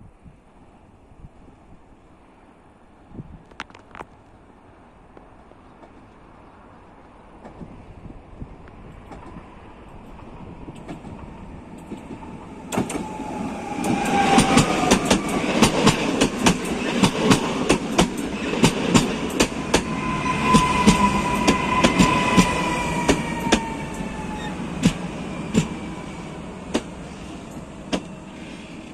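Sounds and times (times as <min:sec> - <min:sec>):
wheels clicking over rail joints: 0:08.7 - 0:25.8
train whine falling in pitch: 0:11.0 - 0:28.9.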